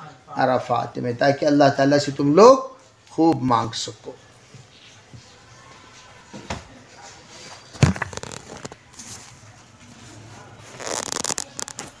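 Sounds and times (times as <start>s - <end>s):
rustling and scraping: 6.8s - 12.0s.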